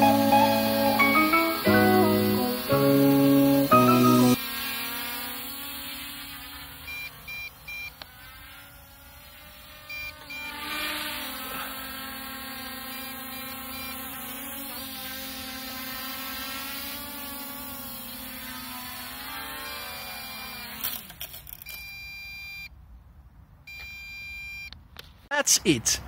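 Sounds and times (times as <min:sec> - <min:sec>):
drone propellers whining: 0:00.0 - 0:04.4
short electronic beeps: 0:21.7 - 0:22.7, 0:23.7 - 0:24.7.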